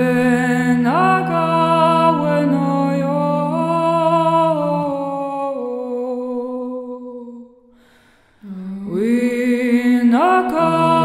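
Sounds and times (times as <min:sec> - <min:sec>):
person singing wordless sliding notes: 0:00.0 - 0:07.5, 0:08.4 - 0:11.0.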